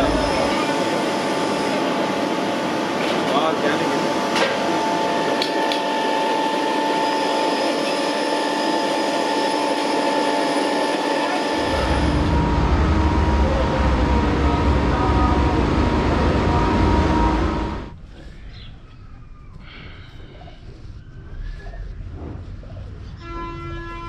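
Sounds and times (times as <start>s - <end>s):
machinery hum: 0.0s - 24.0s
deep low rumble: 11.6s - 18.1s.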